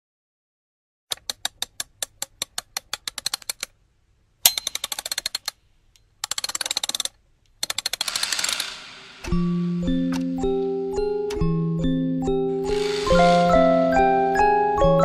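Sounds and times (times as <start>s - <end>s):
rapid mechanical clicking: 4.5s - 5.6s, 6.2s - 9.3s.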